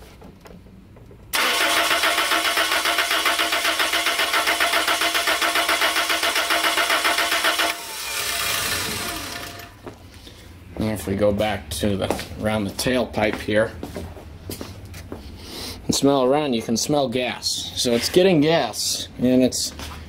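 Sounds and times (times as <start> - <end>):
engine cranking by starter: 1.3 - 9.8.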